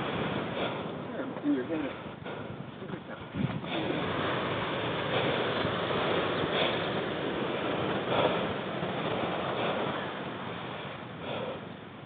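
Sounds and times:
heavy breathing: 0:06.4 - 0:10.2, 0:10.8 - 0:11.8.

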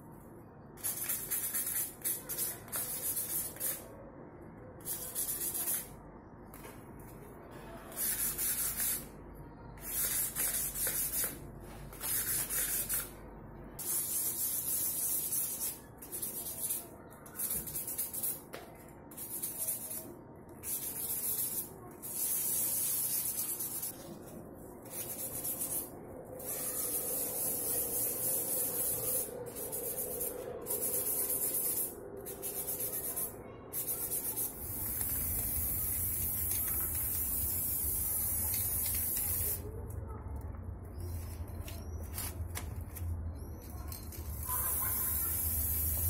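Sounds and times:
aerosol spray can hissing: 0:26.4 - 0:39.6, 0:44.8 - 0:46.0.

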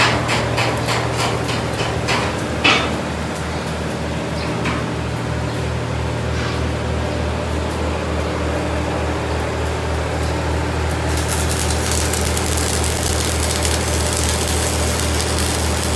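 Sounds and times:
arc welding crackle: 0:09.1 - 0:15.9.

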